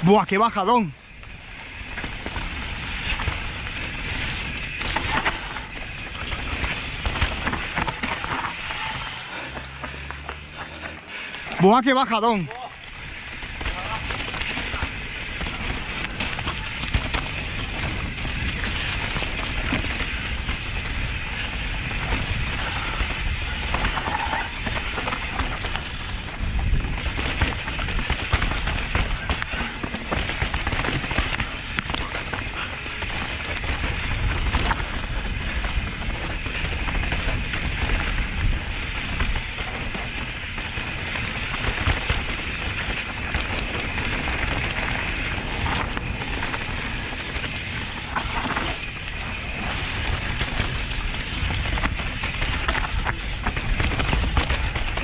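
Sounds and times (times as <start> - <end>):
tyres crackling over gravel: 0.0 - 55.0
bike knocking and rattling: 0.1 - 55.0
wind rushing over microphone: 12.8 - 55.0.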